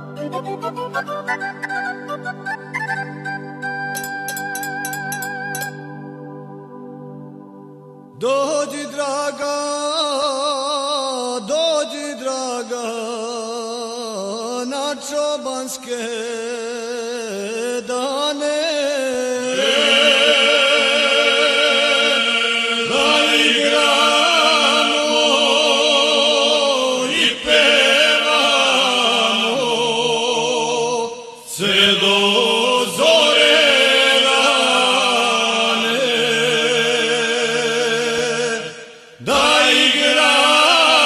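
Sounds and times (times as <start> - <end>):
men singing low held drone: 8.1 - 41.0
male lead voice singing: 8.2 - 41.0.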